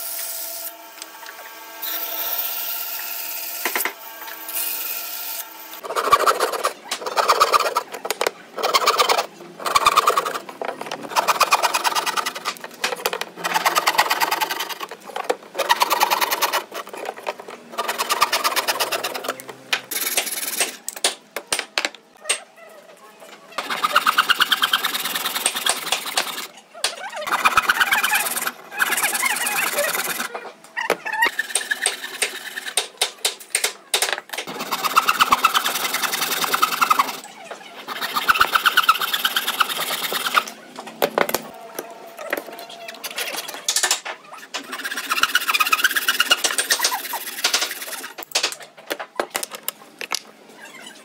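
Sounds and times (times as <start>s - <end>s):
power tool cutting wood: 0.0s - 6.2s.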